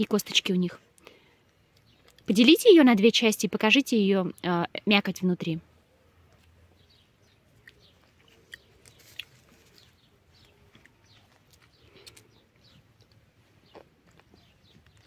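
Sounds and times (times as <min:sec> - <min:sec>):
small bird chirps: 0:06.4 - 0:15.0.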